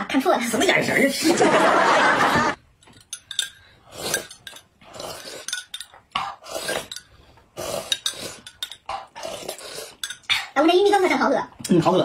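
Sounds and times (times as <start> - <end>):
spoons clinking against glass: 2.8 - 6.0, 6.6 - 7.2, 7.9 - 8.9, 10.0 - 10.3
people slurping soup: 3.6 - 10.6.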